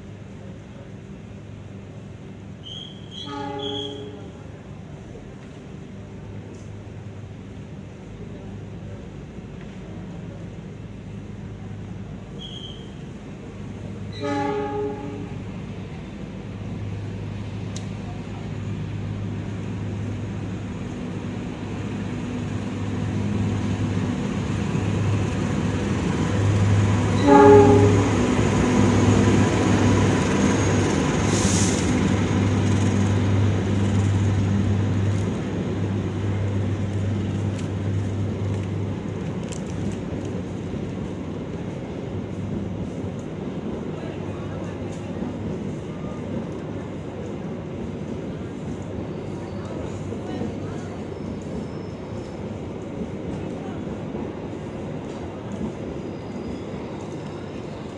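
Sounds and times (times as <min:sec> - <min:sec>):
diesel locomotive engine drone: 0:00.0 - 0:57.9
train horn blast: 0:03.2 - 0:04.3, 0:14.2 - 0:15.4, 0:27.2 - 0:28.3.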